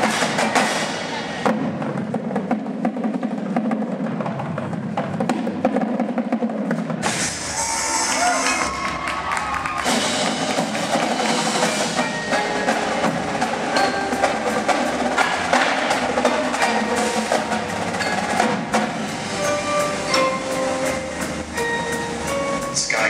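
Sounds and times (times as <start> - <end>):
marching drums: 0.0 - 23.0
marimbas: 9.8 - 23.0.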